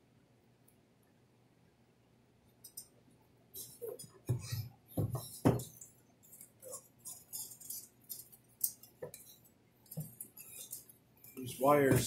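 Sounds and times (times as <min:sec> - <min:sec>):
heater parts clicking and rattling: 0:03.6 - 0:12.0.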